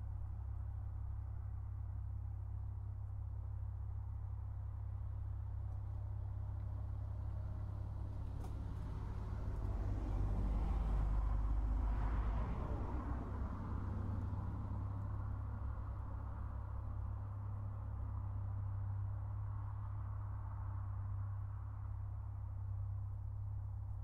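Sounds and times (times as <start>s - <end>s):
vehicle passing by: 8.2s - 15.5s.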